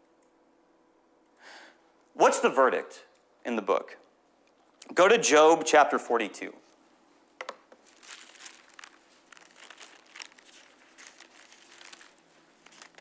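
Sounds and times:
book pages rustling: 0:07.7 - 0:13.0.

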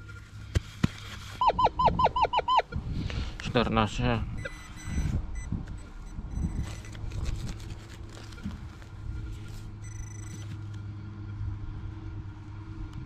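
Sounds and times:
metal detector beep: 0:01.4 - 0:02.8, 0:04.3 - 0:07.0, 0:08.2 - 0:10.6
low rumble: 0:04.2 - 0:10.4.

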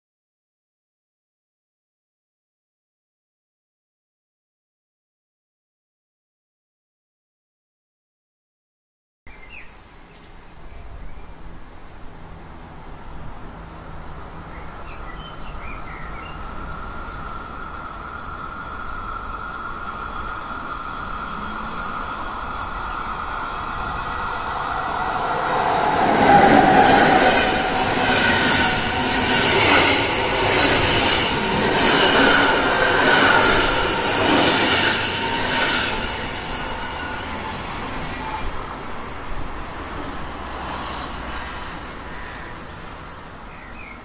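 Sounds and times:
passenger train passing: 0:15.4 - 0:43.5
high steady wheel tones: 0:19.7 - 0:38.7.

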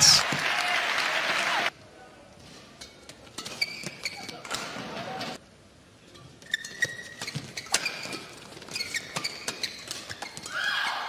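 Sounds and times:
sneakers squeaking on court: 0:03.4 - 0:04.8, 0:06.4 - 0:10.5.

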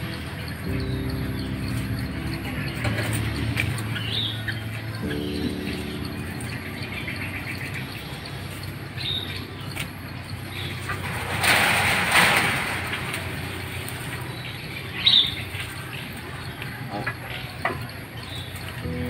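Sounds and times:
bird chirps: 0:00.0 - 0:11.7, 0:13.1 - 0:19.0
loud rushing noise: 0:11.0 - 0:14.3.

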